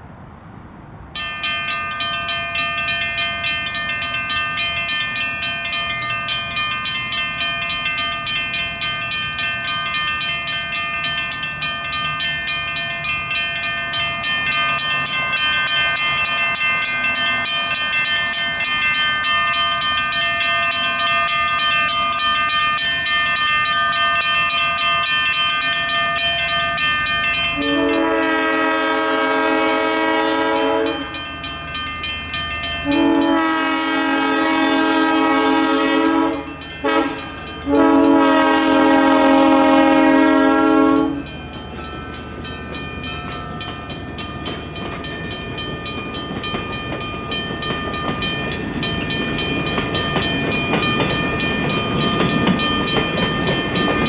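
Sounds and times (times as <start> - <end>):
railroad crossing bells ringing: 1.0 - 54.0
train horn blast: 27.6 - 31.2, 32.8 - 41.3.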